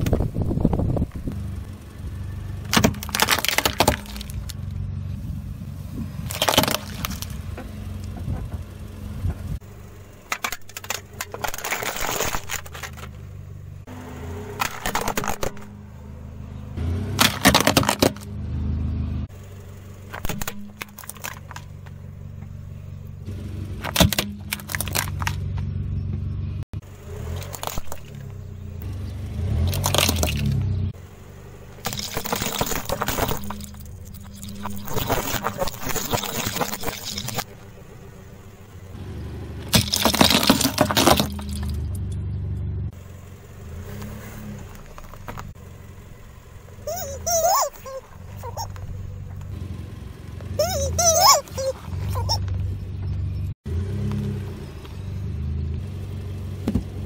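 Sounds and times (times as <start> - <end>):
car engine hum: 0.0 - 57.0
plastic objects cracking under tyre: 2.6 - 4.8, 6.2 - 8.6, 10.3 - 13.3, 14.6 - 15.8, 17.1 - 18.3, 20.0 - 22.6, 23.8 - 25.7, 27.3 - 28.4, 29.6 - 30.6, 31.8 - 37.7, 39.6 - 42.1, 44.0 - 45.6.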